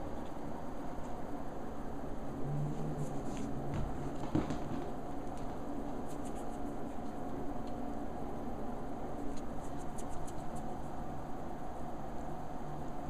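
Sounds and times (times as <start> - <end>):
low background hum: 0.0 - 13.0
kittens' claws scratching: 5.3 - 7.3, 9.2 - 11.0.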